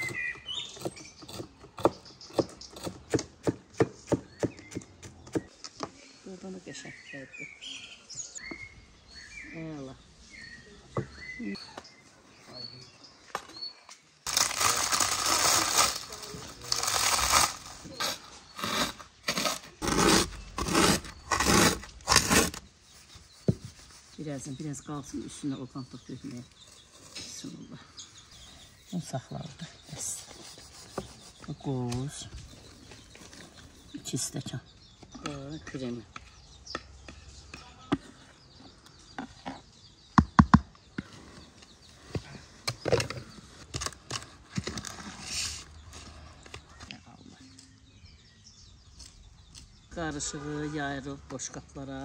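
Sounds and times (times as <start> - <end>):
pastry crunching in metal tray: 14.3 - 18.2.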